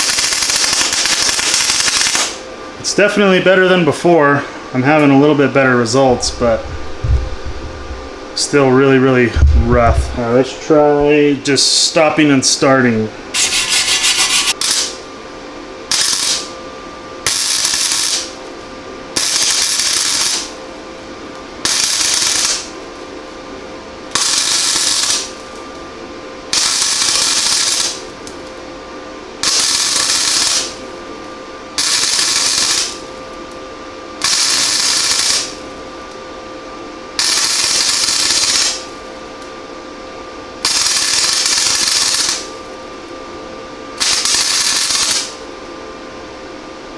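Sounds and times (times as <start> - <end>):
welding arc bursts: 0.0 - 2.4, 13.4 - 15.0, 15.9 - 16.5, 17.2 - 18.4, 19.2 - 20.5, 21.6 - 22.7, 24.1 - 25.3, 26.5 - 28.0, 29.4 - 30.8, 31.8 - 33.0, 34.2 - 35.6, 37.2 - 38.8, 40.6 - 42.5, 44.0 - 45.4
welder steady hum: 0.0 - 46.9.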